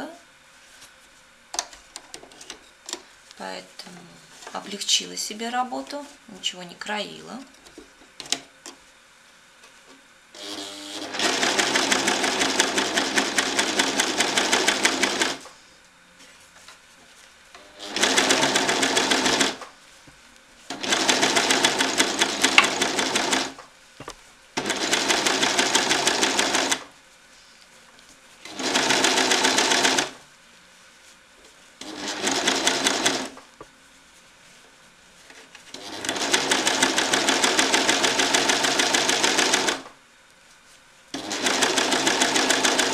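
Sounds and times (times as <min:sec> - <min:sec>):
overlocker stitching: 0:17.6 - 0:19.6, 0:20.7 - 0:23.6, 0:31.8 - 0:33.4, 0:35.7 - 0:39.8.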